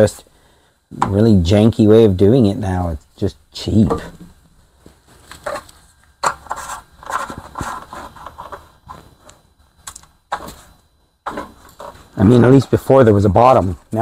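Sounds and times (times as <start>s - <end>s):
hands handling plastic parts: 3.9s - 12.2s.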